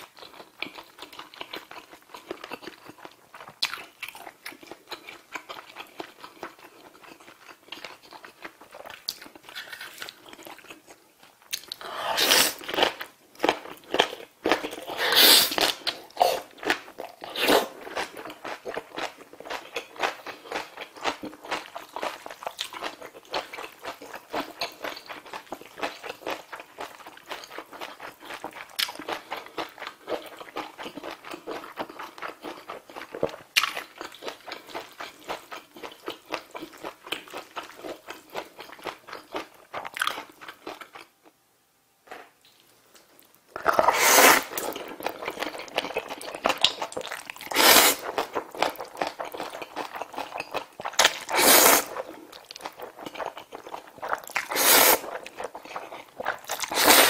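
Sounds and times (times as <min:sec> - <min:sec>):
wet chewing and mouth smacking: 0:00.0 - 0:41.1, 0:42.4 - 0:57.0
slurping noodles: 0:11.8 - 0:12.6, 0:14.9 - 0:16.5, 0:43.6 - 0:44.8, 0:47.4 - 0:48.1, 0:51.2 - 0:52.0, 0:54.0 - 0:55.2, 0:56.3 - 0:57.0.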